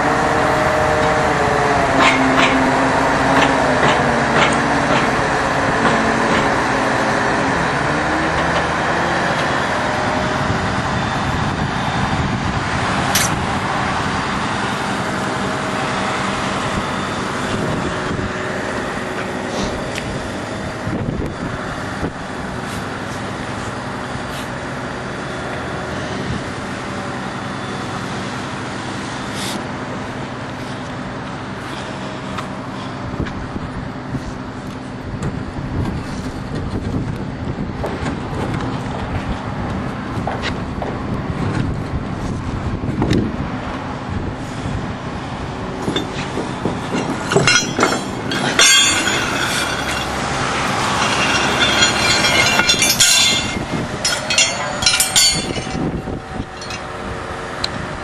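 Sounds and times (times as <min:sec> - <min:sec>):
diesel engine running: 0:00.0 - 0:58.0
metallic knocks from chain: 0:46.8 - 0:55.9.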